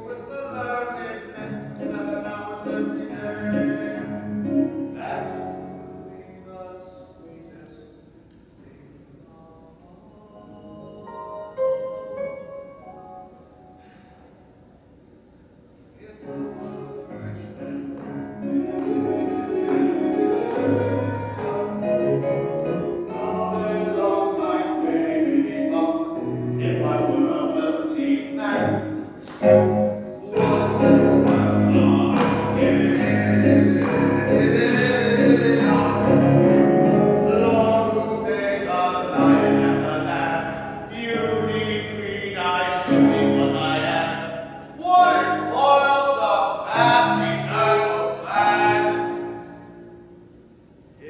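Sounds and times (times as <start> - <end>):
man singing: 0.0 - 7.8, 8.6 - 12.2, 16.0 - 49.8
instrumental accompaniment: 16.2 - 45.6.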